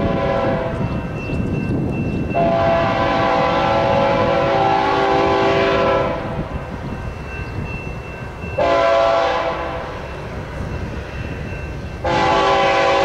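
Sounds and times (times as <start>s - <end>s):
train air horn blowing: 0.0s - 0.8s, 2.4s - 6.5s, 8.6s - 10.0s, 12.0s - 13.0s.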